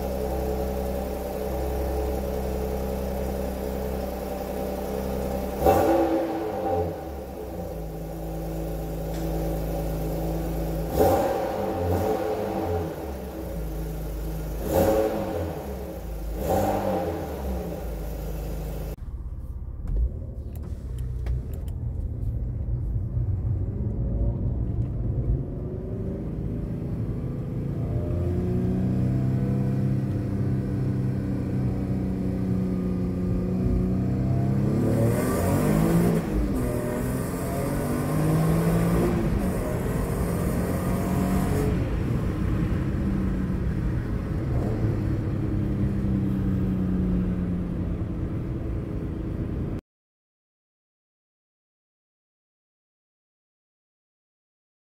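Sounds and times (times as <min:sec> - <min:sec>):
car engine revving: 0:00.0 - 0:49.8
car accelerating through gears: 0:05.2 - 0:07.7, 0:10.7 - 0:19.0, 0:23.3 - 0:43.5.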